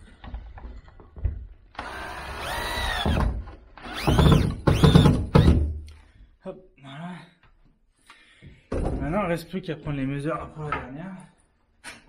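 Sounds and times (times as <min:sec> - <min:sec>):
drill motor whirring: 0:01.8 - 0:05.6.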